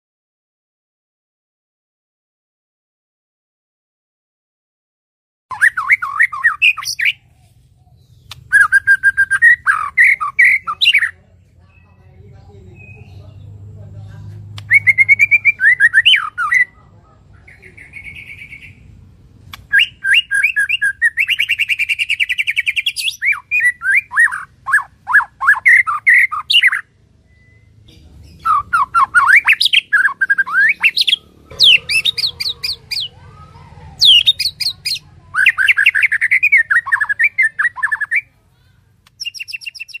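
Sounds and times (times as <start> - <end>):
bird harsh rapid chirps: 5.5 - 12.0, 14.6 - 16.8, 17.4 - 38.3, 39.0 - 40.0.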